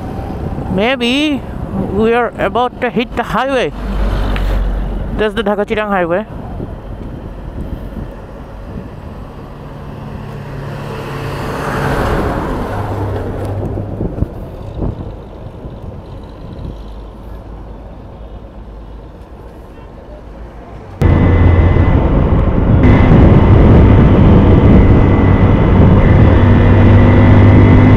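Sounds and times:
vehicle passing: 0.0 - 5.5, 6.3 - 15.1, 19.6 - 27.9
loud steady rush with low hum: 21.0 - 27.9
motorcycle engine: 21.0 - 27.9.

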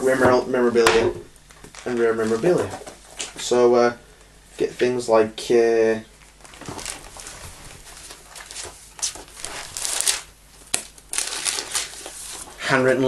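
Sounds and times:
paper rustling and crinkling: 1.4 - 3.4, 6.2 - 13.0.

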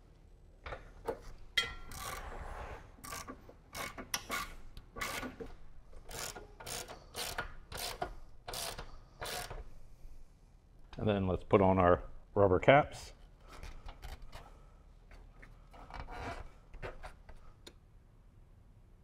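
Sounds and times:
socket ratchet clicking: 1.6 - 2.3, 3.0 - 5.4, 6.1 - 9.6.

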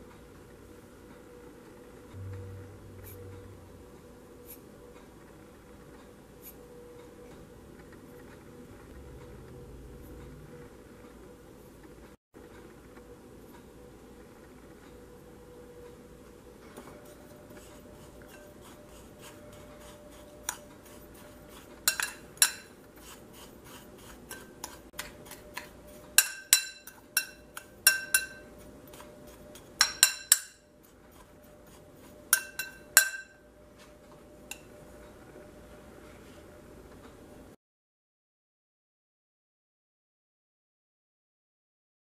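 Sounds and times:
spoon stirring dry spices: 16.8 - 33.4
spoon clinking ceramic bowl: 21.9 - 22.7, 24.3 - 30.6, 32.3 - 33.4.

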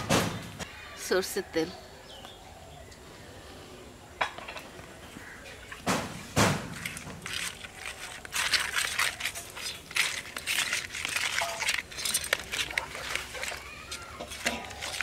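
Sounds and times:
clicking and scraping in metal pot: 6.7 - 15.0.

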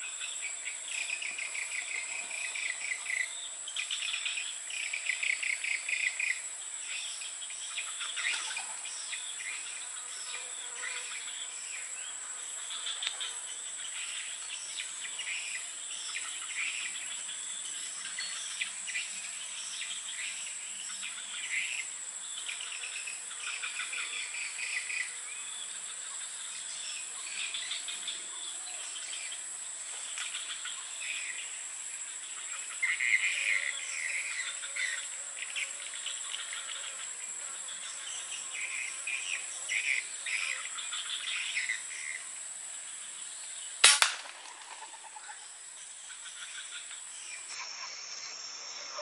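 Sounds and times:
insect chirping bursts: 38.5 - 49.0
gunshot: 43.8 - 44.4
high-pitched insect drone: 44.4 - 49.0.

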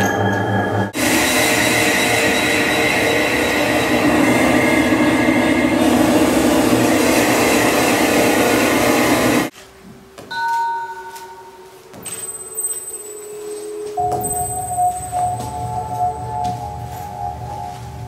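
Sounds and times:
electronic noise drone: 0.9 - 9.5.

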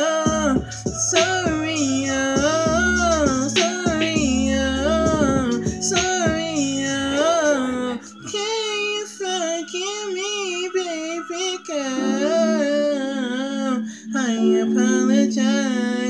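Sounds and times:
low held backing note: 12.0 - 15.4.

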